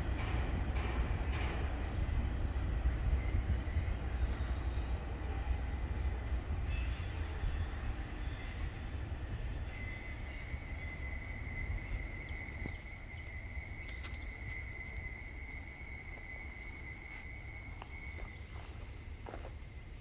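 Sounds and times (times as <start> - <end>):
bird chirps: 6.7 - 19.1.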